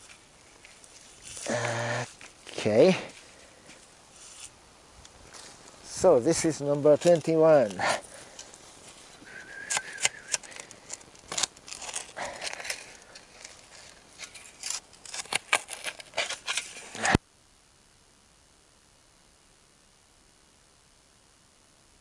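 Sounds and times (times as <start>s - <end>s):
digging tool in soil and roots: 0.0s - 3.2s, 6.5s - 17.2s.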